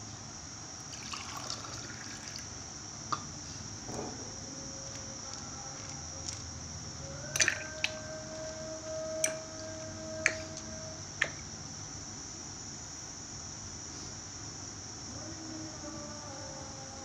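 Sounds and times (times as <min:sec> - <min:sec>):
fruits plopping into water: 0:07.3 - 0:08.0.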